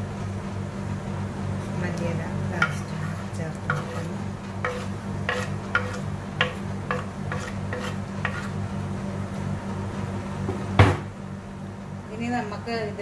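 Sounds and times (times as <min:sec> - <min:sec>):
steady low hum: 0:00.0 - 0:13.0
cutting board scraping pot rim: 0:02.6 - 0:08.6.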